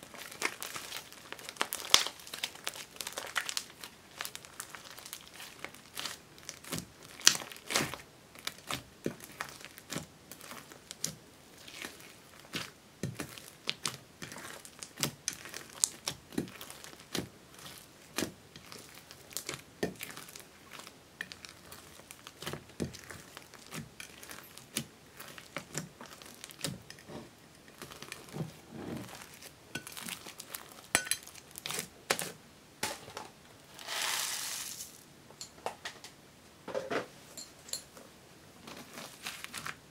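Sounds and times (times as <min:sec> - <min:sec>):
slime crackling and popping: 0:00.0 - 0:27.0, 0:27.7 - 0:32.3
slime squish: 0:00.0 - 0:32.4.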